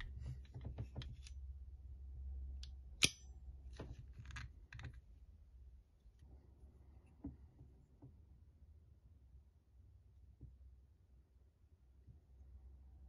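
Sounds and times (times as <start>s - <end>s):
pistol parts clicking: 2.6s - 3.3s.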